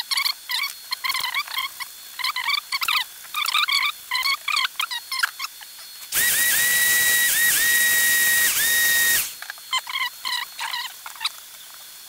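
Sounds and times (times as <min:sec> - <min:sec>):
air blower rushing hiss: 0:06.1 - 0:09.4.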